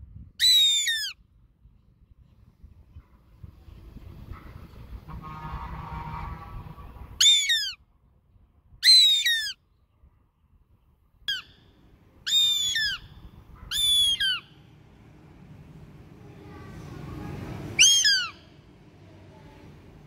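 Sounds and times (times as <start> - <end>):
goshawk calling: 0.4 - 1.2, 7.2 - 7.8, 8.8 - 9.6, 11.3 - 11.6, 12.2 - 14.7, 17.8 - 18.5.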